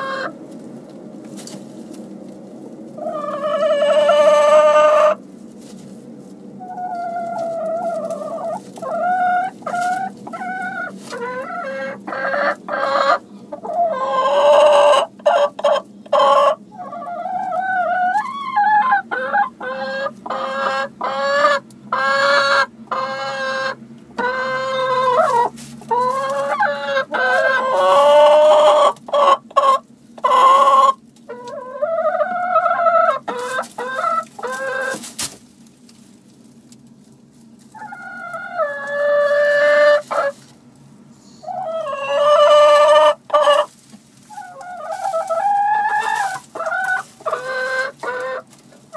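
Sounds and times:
hens clucking and calling: 0.0 - 5.2, 6.4 - 35.4, 37.6 - 40.5, 41.2 - 48.9.

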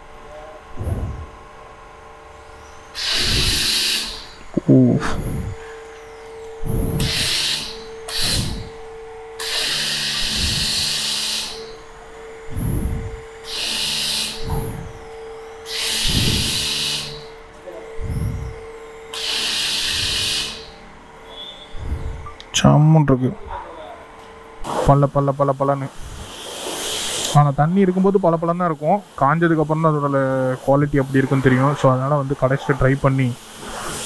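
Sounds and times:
steady low hum: 0.0 - 34.0
pressure washer spraying: 3.0 - 5.4, 6.7 - 8.8, 9.4 - 11.7, 15.6 - 17.3, 19.2 - 20.7, 25.9 - 34.0.

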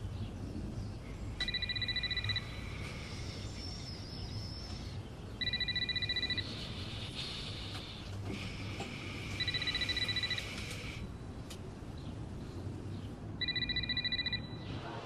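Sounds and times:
telephone ringing: 1.4 - 2.6, 5.4 - 6.7, 9.3 - 11.1, 13.4 - 14.7.

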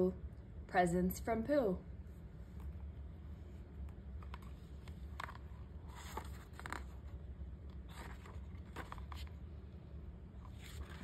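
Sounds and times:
steady low hum: 0.0 - 11.0
paper rustling: 4.2 - 9.4, 10.4 - 11.0.

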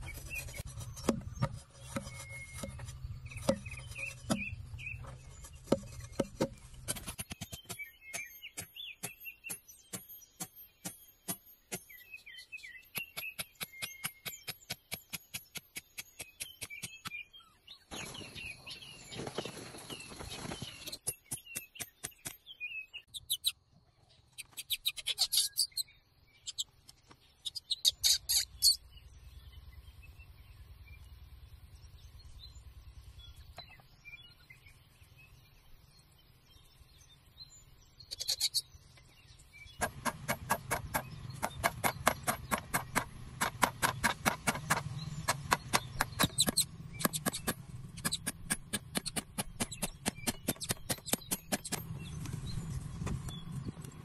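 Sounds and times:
rustling noise: 17.9 - 21.0
hammer tapping nails: 39.8 - 51.9.

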